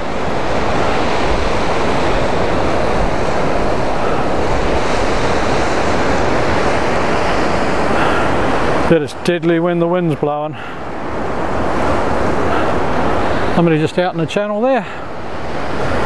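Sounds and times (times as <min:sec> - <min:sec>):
wind on microphone: 0:00.0 - 0:09.3
low buffeting rumble: 0:00.0 - 0:16.0
surf breaking on rocky shore: 0:00.0 - 0:16.0.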